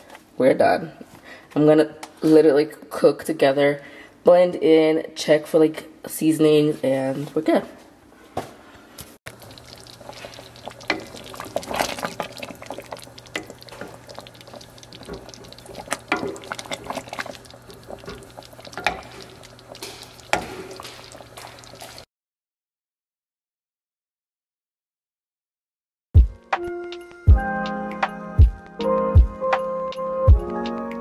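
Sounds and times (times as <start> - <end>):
wooden spoon stirring stew: 9.3 - 22.0
stew bubbling: 9.3 - 22.1.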